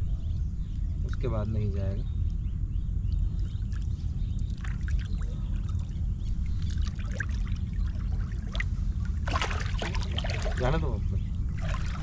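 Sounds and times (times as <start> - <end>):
steady low rumble: 0.0 - 12.0
water splashing and trickling: 3.1 - 12.0.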